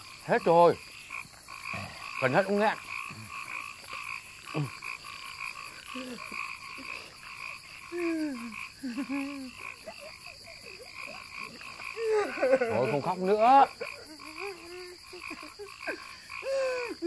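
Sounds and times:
frogs croaking: 0:00.0 - 0:17.0
man sobbing and whimpering: 0:07.9 - 0:10.8, 0:11.4 - 0:17.0.

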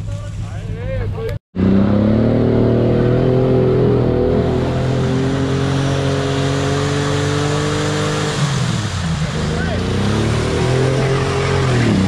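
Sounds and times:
engine running at high revs: 0:01.6 - 0:12.0.

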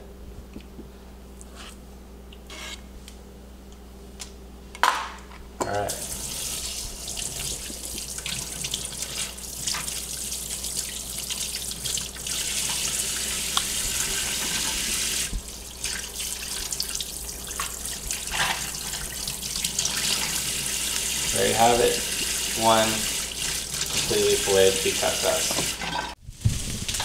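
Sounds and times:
faucet running into metal sink: 0:05.9 - 0:26.1.

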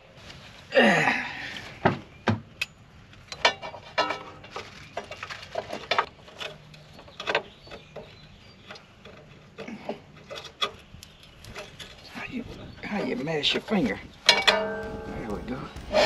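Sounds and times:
metal clicks and clanks: 0:14.2 - 0:16.0.

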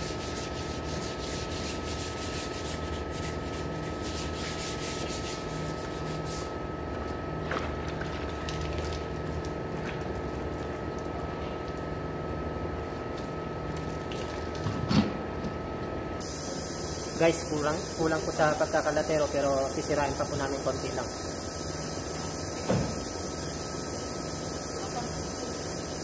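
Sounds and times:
sandpaper rubbing on steel: 0:00.0 - 0:06.5
mechanical hum with high whine: 0:00.0 - 0:26.0.

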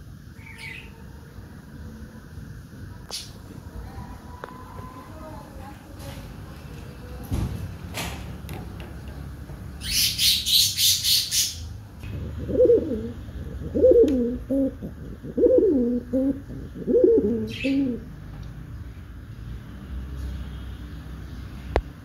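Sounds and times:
pigeon cooing: 0:12.0 - 0:18.2.

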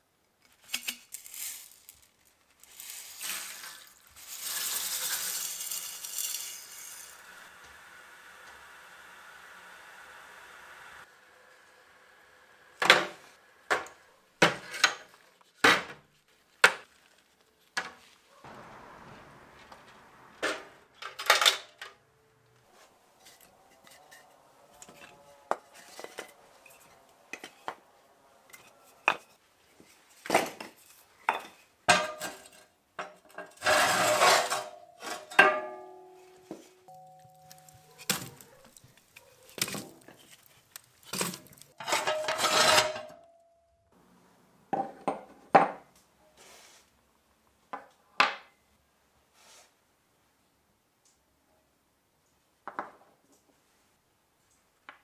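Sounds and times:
logs clattering: 0:36.6 - 0:43.2
firewood logs clunking: 0:37.0 - 0:42.3.

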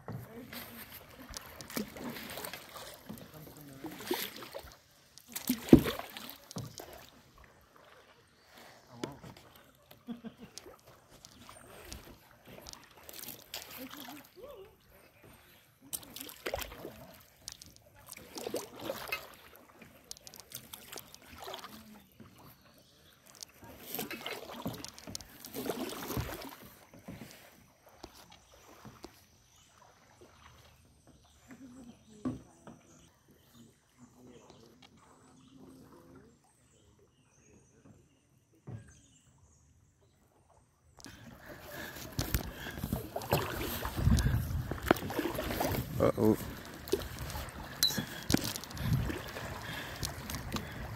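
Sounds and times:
paddles splashing in water: 0:00.0 - 0:37.0, 0:40.4 - 0:50.9
paddles and hulls knocking: 0:05.2 - 0:07.0, 0:41.2 - 0:50.9.

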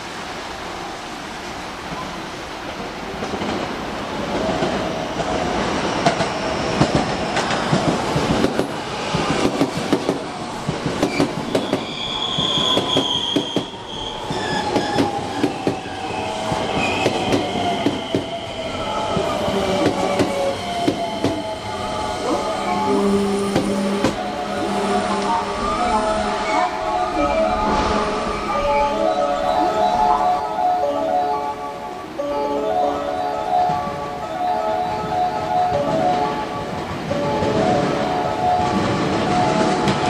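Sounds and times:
high wheel squeal: 0:11.1 - 0:19.8.

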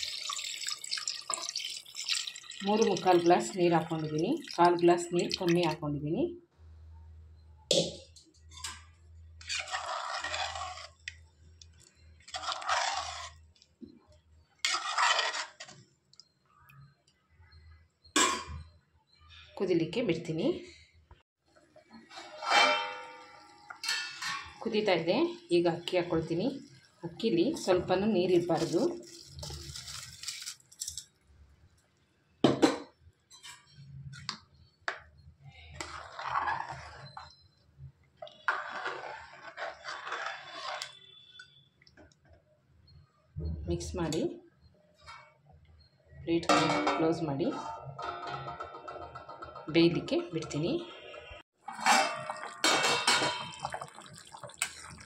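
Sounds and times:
stirring and bubbling rush: 0:00.0 - 0:05.8, 0:09.5 - 0:11.1, 0:12.2 - 0:13.4, 0:38.2 - 0:41.0, 0:51.7 - 0:55.0
ladle scraping and sloshing in pot: 0:08.6 - 0:13.7, 0:14.6 - 0:15.8, 0:22.0 - 0:24.6, 0:27.6 - 0:31.0, 0:35.5 - 0:37.5, 0:38.2 - 0:41.5, 0:51.6 - 0:55.0.

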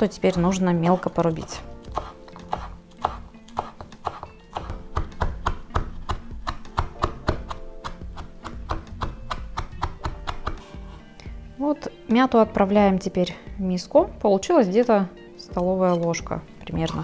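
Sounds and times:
background music: 0:00.0 - 0:17.0
knife chopping on wooden board: 0:00.8 - 0:11.0.

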